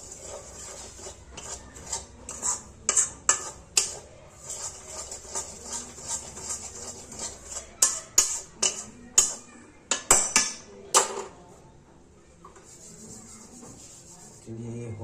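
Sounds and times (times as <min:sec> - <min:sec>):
metal spatula scraping a metal pan: 0:00.0 - 0:10.3.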